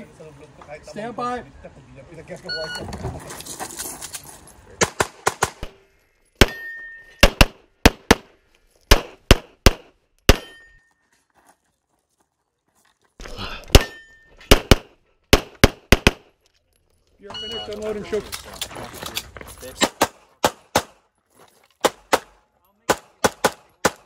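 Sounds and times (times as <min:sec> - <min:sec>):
pistol shots: 0:04.8 - 0:05.8, 0:06.4 - 0:08.3, 0:08.9 - 0:10.6, 0:13.7 - 0:16.3, 0:19.8 - 0:21.0, 0:21.8 - 0:24.0
short ringing tone: 0:06.5 - 0:07.2, 0:17.3 - 0:17.8.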